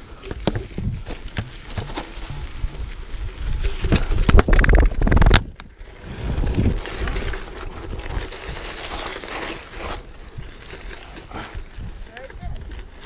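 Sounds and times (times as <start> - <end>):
bike tyres rolling over ground: 0.0 - 13.0
bike knocks and rattles: 0.2 - 8.3.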